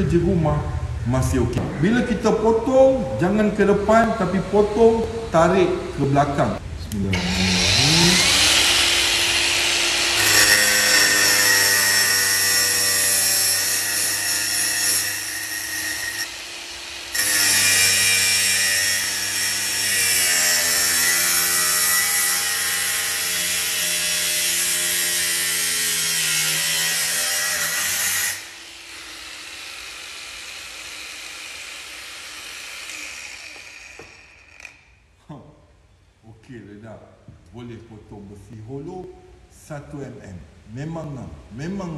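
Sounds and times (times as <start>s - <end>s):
angle grinder cutting steel: 7.1s - 34.9s.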